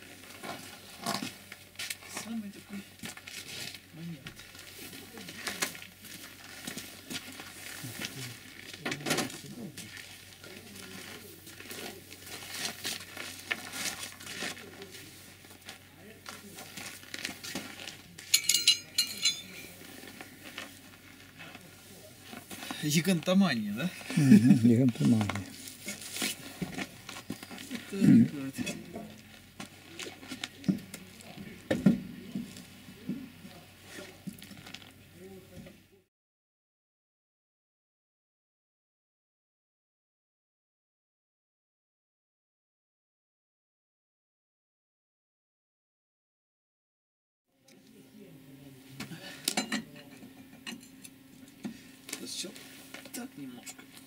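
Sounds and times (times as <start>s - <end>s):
metal tools clicking and scraping: 18.3s - 19.8s.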